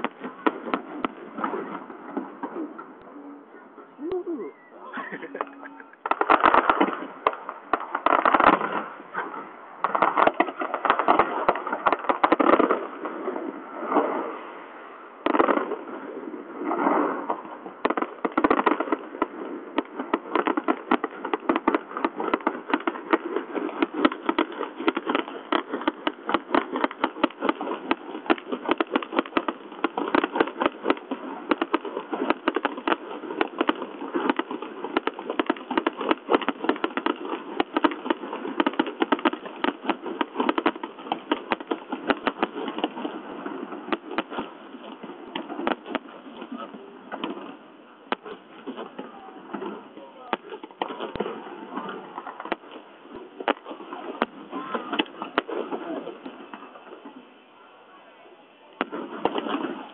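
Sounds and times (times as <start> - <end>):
firework shells bursting: 5.2 - 14.2, 16.7 - 56.4, 58.8 - 59.9
rapid crackling of small pops: 5.4 - 12.9, 16.7 - 47.5, 48.1 - 55.8.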